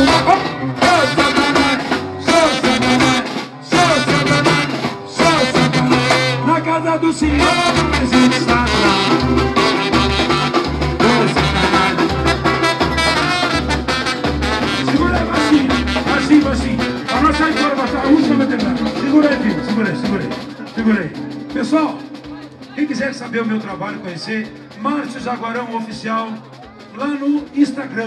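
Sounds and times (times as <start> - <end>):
man singing: 0.0 - 13.6, 14.6 - 21.2
deep drum beat: 0.0 - 27.8
samba band playing: 0.0 - 28.0.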